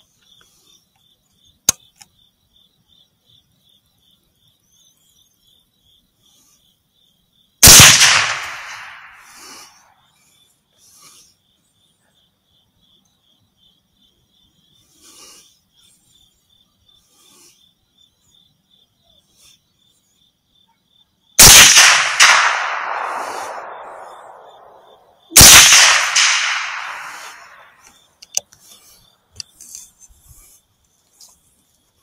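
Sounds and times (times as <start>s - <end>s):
insects chirping: 0.0s - 32.0s
rifle shot: 7.6s - 9.3s, 21.4s - 27.8s.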